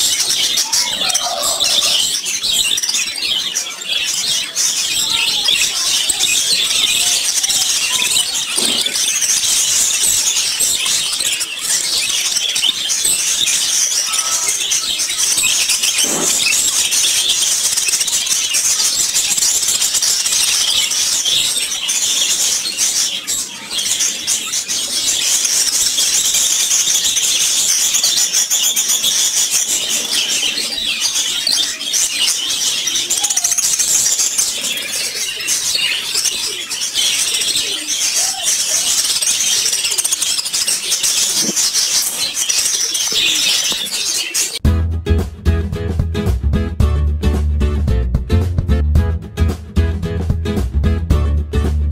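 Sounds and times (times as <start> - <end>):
low gliding bird calls: 0.0 - 2.7
budgerigars chattering: 0.0 - 44.6.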